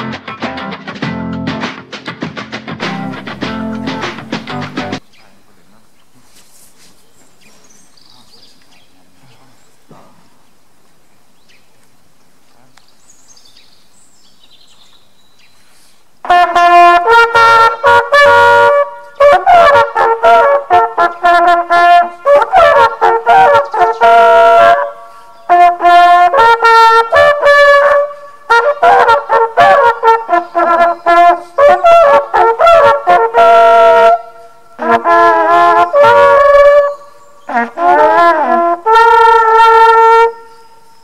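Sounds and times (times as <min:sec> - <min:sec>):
hunting horns playing fanfare: 0:16.2 - 0:40.5.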